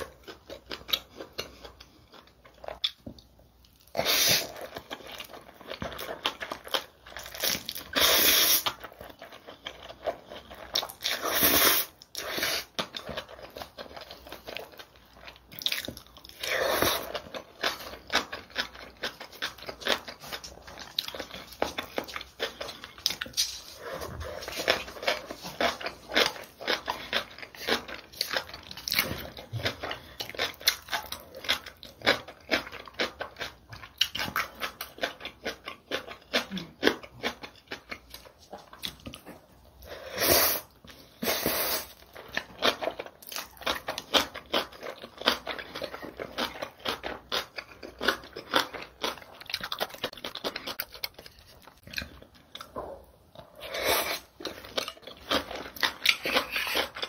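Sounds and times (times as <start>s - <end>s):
wet chewing and smacking: 0.0s - 8.0s, 11.9s - 39.9s, 41.9s - 57.0s
slurping noodles: 3.9s - 4.7s, 7.4s - 8.8s, 11.1s - 12.8s, 39.8s - 42.1s, 53.5s - 54.4s.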